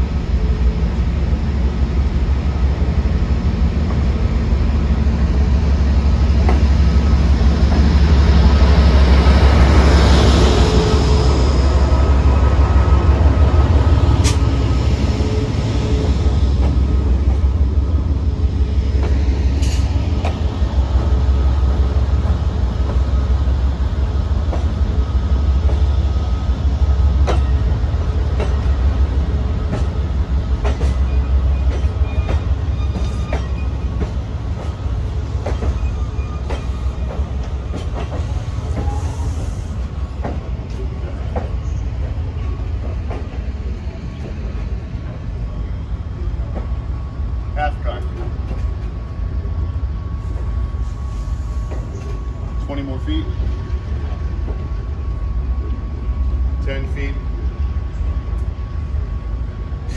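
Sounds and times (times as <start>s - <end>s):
diesel locomotive engine rumbling: 0.0s - 59.9s
train wheels clicking over rail joints: 6.4s - 6.8s, 16.5s - 17.5s, 22.2s - 25.0s, 27.1s - 45.2s, 48.0s - 49.0s, 51.5s - 52.2s.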